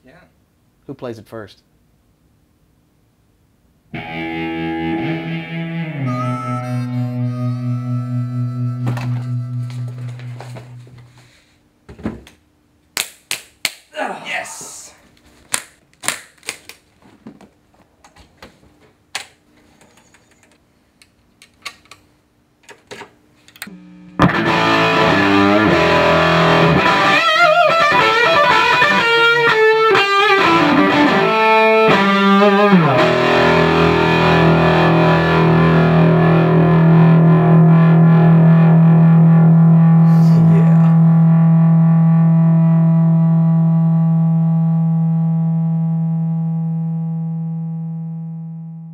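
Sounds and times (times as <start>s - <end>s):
distorted electric guitar: 3.9s - 11.4s, 23.7s - 48.9s.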